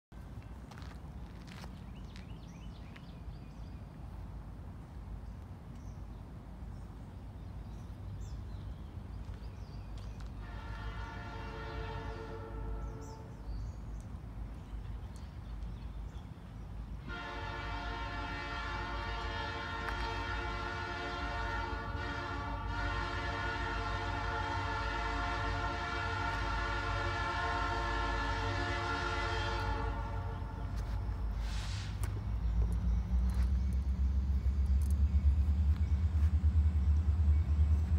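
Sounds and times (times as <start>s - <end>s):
locomotive air horn: 10.4s - 13.4s, 17.0s - 32.0s
steady low rumble: 18.1s - 37.9s.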